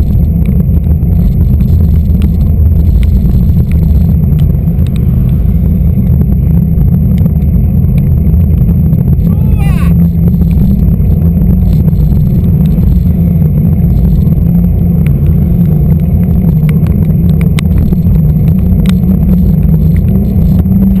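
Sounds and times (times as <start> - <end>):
bike tyre rolling on wet asphalt: 0.0 - 21.0
wind buffeting microphone: 0.0 - 21.0
sharp ticks: 10.0 - 21.0.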